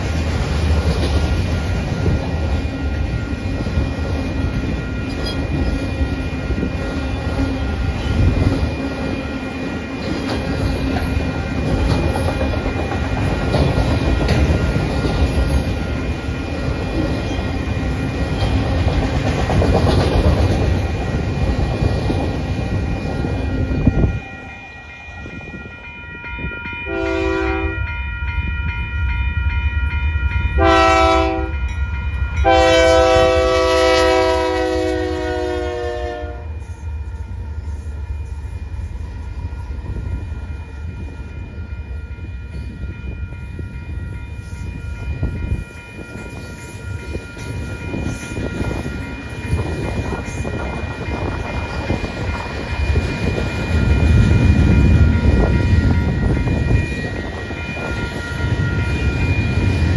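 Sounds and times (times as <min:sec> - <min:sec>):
freight train rolling on rails: 0:00.0 - 0:59.9
locomotive horn blasts: 0:26.9 - 0:27.9, 0:30.6 - 0:31.6, 0:32.4 - 0:36.6.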